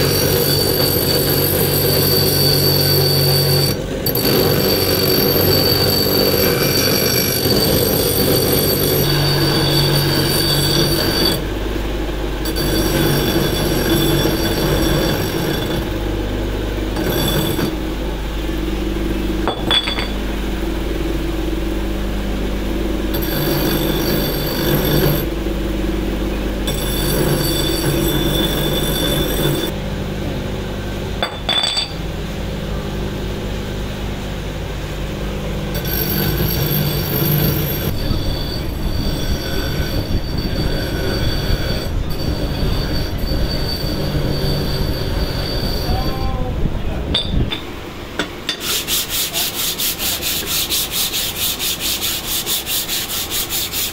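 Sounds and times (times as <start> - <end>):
high squealing metal grind: 0.0 - 11.5, 12.4 - 16.1, 16.9 - 17.9, 23.1 - 25.3, 26.7 - 29.8, 35.8 - 46.6, 48.5 - 53.9
grinder motor hum: 0.0 - 53.9.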